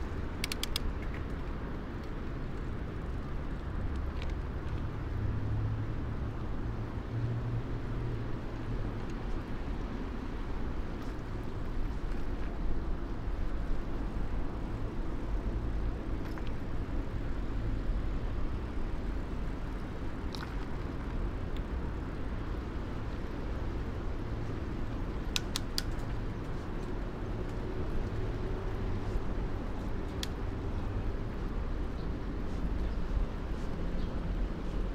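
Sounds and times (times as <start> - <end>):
bicycle riding rumble: 0.0 - 34.9
light clicks and rattles: 0.4 - 2.7.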